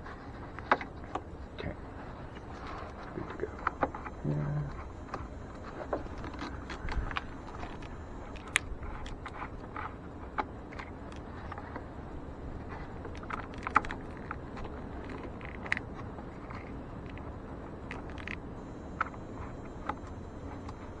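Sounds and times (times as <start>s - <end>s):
low background noise: 0.0s - 21.0s.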